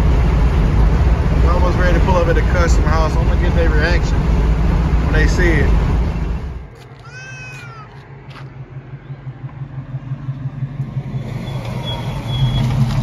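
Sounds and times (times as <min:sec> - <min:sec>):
car exhaust idling rumble: 0:00.0 - 0:13.0.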